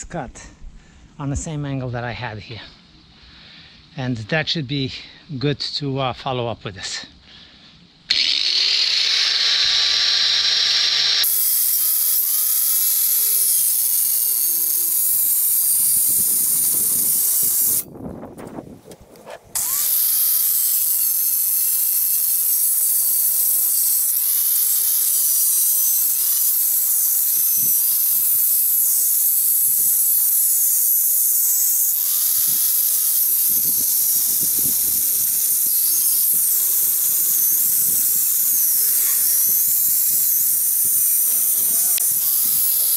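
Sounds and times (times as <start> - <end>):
angle grinder cutting metal: 8.1 - 17.9, 19.5 - 42.9.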